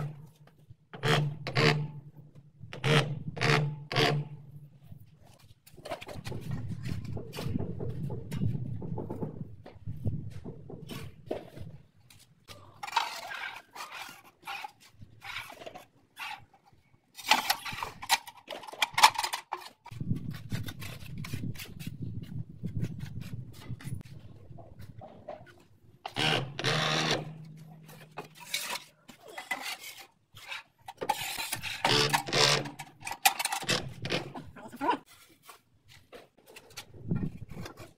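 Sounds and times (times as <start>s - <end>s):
trowel scraping adhesive: 12.8s - 16.6s, 19.6s - 24.1s, 26.1s - 34.3s.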